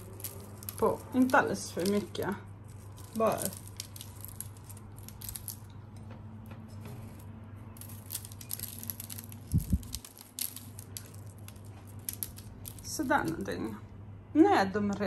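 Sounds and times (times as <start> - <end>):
salt flakes pattering: 0.0 - 5.7, 7.8 - 13.8
low steady hum: 0.0 - 15.0.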